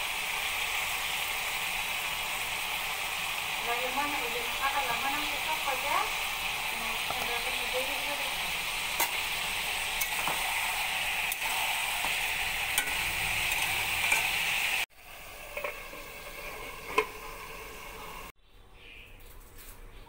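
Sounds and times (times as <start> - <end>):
food sizzling in oil: 0.0 - 18.3
metal lid clink: 11.3 - 14.4
spoon clicking on metal pot: 12.8 - 14.3.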